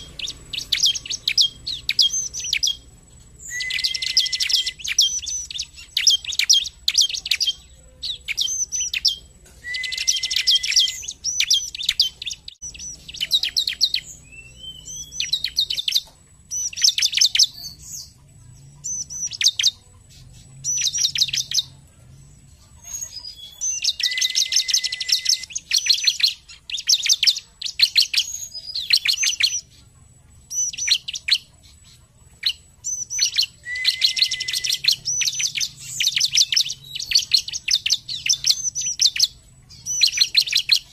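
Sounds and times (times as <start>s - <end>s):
bird buzzy trills: 0.0s - 40.9s
bird rising whistled glide: 9.6s - 11.1s, 33.3s - 35.3s.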